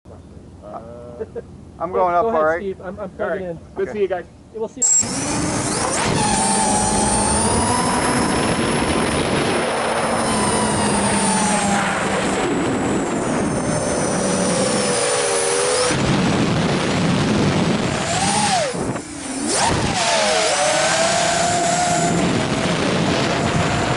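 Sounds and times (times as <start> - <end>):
drone motors whirring whine: 4.8 - 23.9.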